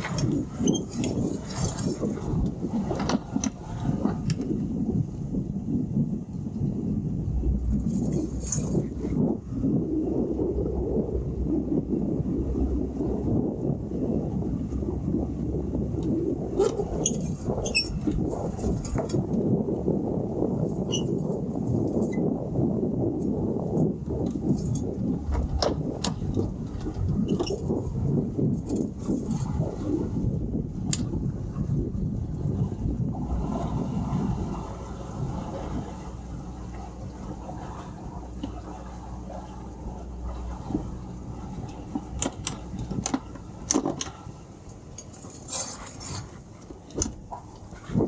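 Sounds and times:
outboard motors running: 0:00.0 - 0:48.0
wind rumbling on microphone: 0:00.0 - 0:48.0
outboard motors idling: 0:30.2 - 0:48.0
clicks and knocks of controls: 0:41.7 - 0:44.2.

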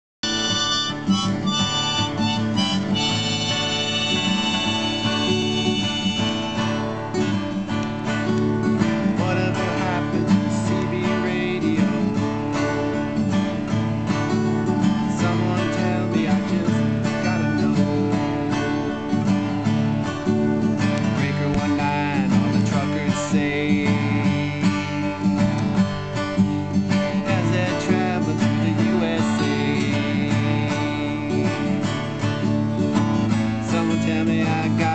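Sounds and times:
harmonica: 0:00.2 - 0:07.5
acoustic guitar strumming: 0:00.2 - 0:34.9.

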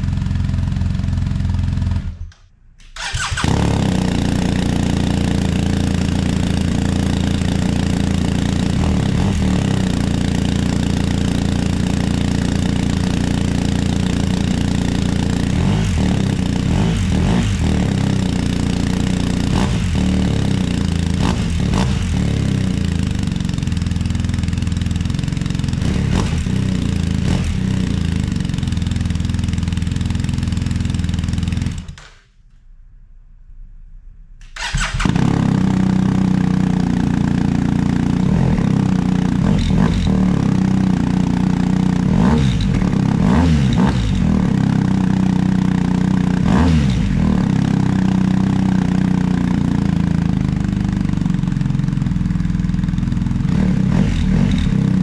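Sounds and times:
motorcycle engine idling: 0:00.0 - 0:02.3, 0:03.0 - 0:32.0, 0:34.6 - 0:55.0.

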